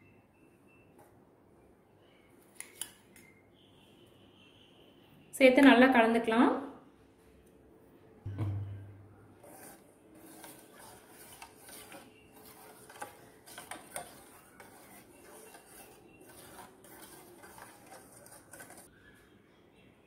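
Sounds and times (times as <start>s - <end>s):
spoon stirring in a metal saucepan: 9.3s - 18.9s.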